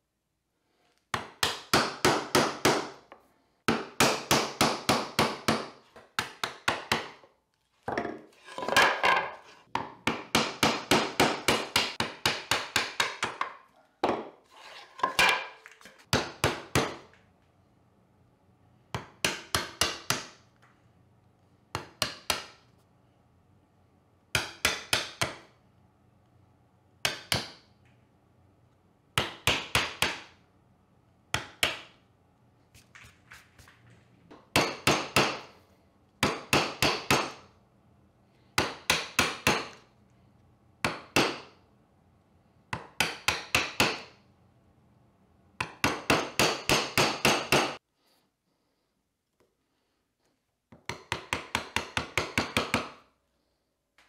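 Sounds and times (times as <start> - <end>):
mallet striking chisel: 24.4 - 25.4, 45.6 - 47.8.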